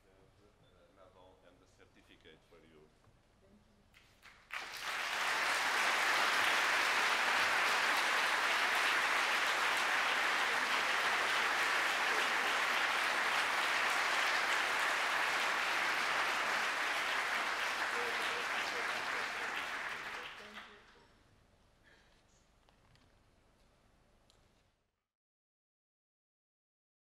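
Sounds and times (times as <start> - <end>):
audience applauding: 4.2 - 20.9.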